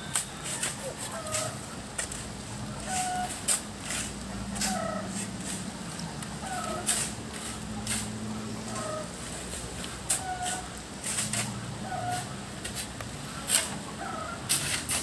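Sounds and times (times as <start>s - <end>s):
shovels scraping sand: 0.0s - 15.0s
chicken clucking: 6.4s - 7.1s, 7.8s - 9.2s.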